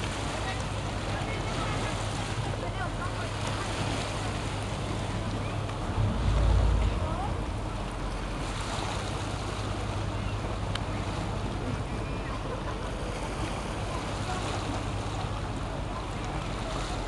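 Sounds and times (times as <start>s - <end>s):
boat engines droning: 0.0s - 17.0s
water noise: 0.0s - 17.0s
wind: 0.0s - 17.0s
wind rumbling on microphone: 5.2s - 10.0s.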